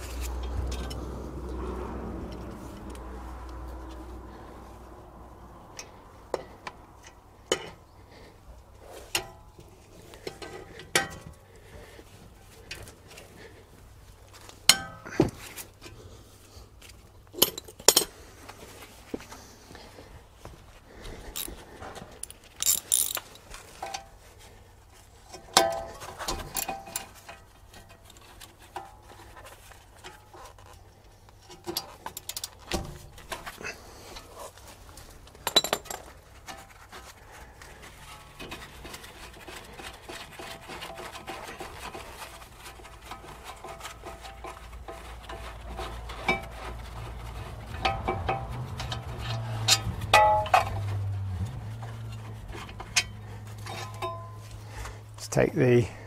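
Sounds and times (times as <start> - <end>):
metal tools clinking: 0.0 - 1.2, 17.3 - 18.2, 21.2 - 24.2, 25.3 - 29.2, 31.4 - 36.8, 47.8 - 51.1, 52.0 - 54.8.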